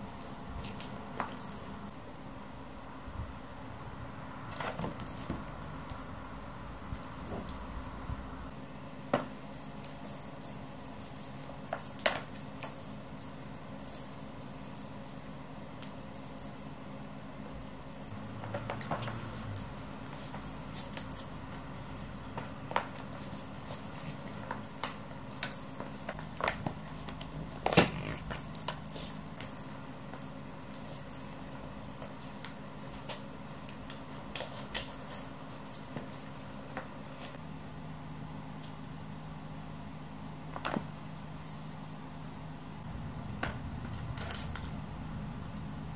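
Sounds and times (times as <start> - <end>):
cat toy clicks and rattles: 44.0 - 45.5.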